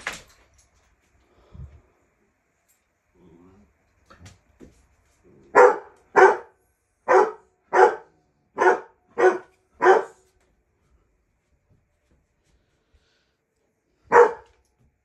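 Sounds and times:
dog barking: 5.5 - 10.3, 14.1 - 14.6.

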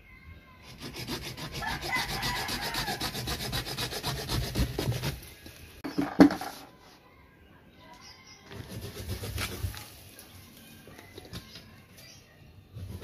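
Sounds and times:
scraping on wood: 0.7 - 5.2, 8.5 - 10.0.

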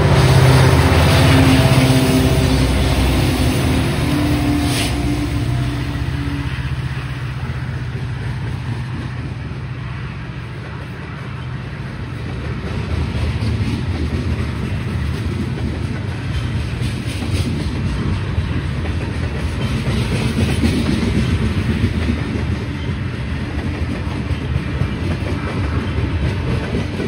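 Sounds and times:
diesel locomotive engine hum: 0.0 - 27.0
train cars rumbling on rails: 0.0 - 27.0
wheels clicking over rail joints: 7.3 - 27.0.

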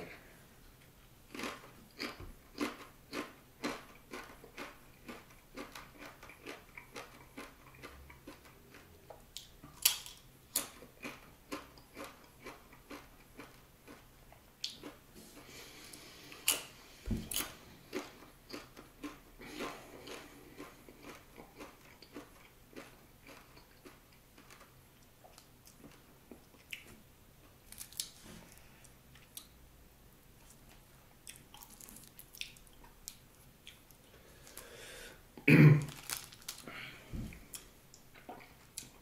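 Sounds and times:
crunching tortilla chip: 27.7 - 28.2, 31.3 - 32.7, 35.8 - 36.9.

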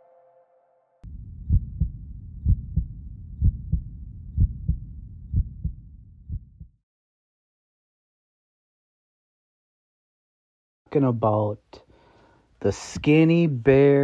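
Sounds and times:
heartbeat thumps: 1.0 - 6.8
low rumble: 1.0 - 6.8.

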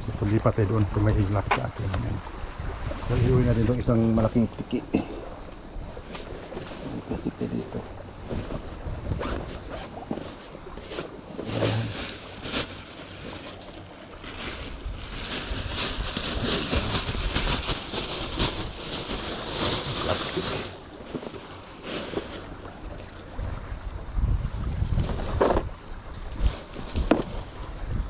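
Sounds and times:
plastic bag rustling: 10.2 - 22.6.

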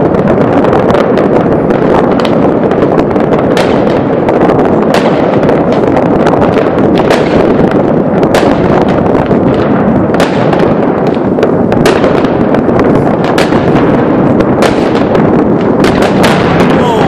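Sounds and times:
fireworks and firecrackers banging: 0.0 - 17.0.

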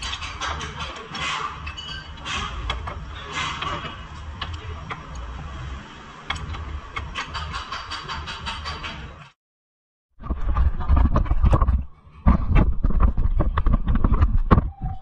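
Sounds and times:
steady low rumble: 10.2 - 14.8.

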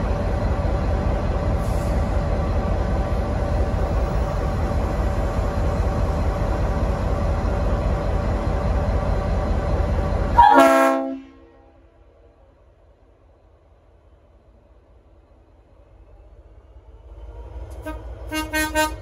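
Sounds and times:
diesel locomotive rumbling: 0.0 - 19.0
locomotive air horn blast: 10.4 - 11.7, 17.8 - 19.0.

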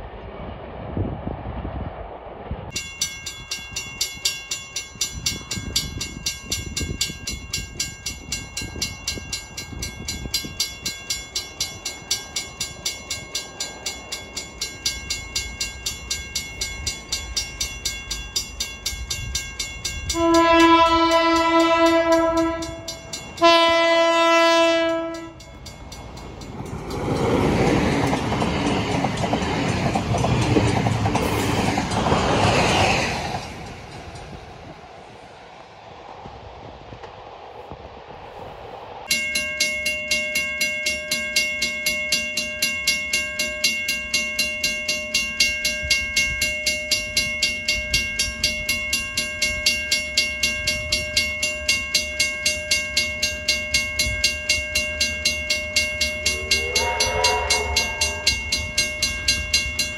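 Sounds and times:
train passing rushing: 0.0 - 59.9
bell ringing: 2.7 - 32.6, 39.1 - 59.9
train horn blasts: 20.1 - 25.5, 56.3 - 58.6.

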